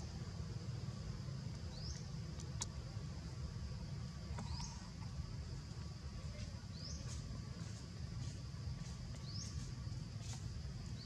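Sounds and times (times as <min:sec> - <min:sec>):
low outdoor rumble: 0:00.0 - 0:11.0
bird chirping: 0:01.5 - 0:02.7, 0:04.3 - 0:11.0.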